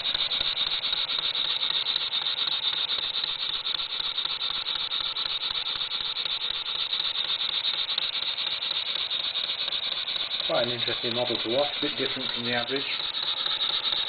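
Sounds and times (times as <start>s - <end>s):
model steam engine running: 0.0s - 14.0s.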